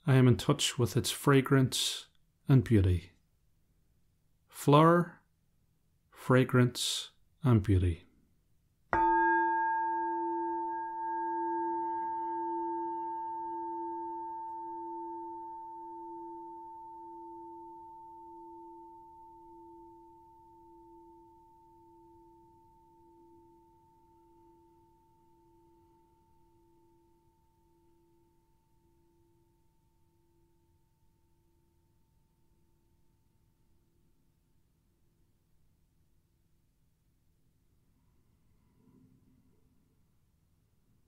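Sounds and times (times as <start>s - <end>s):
meditation bowl bell ringing: 9.0s - 28.2s.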